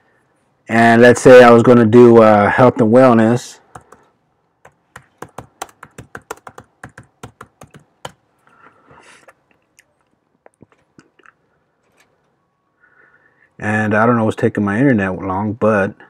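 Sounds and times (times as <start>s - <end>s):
typing on computer keyboard: 3.7s - 8.2s.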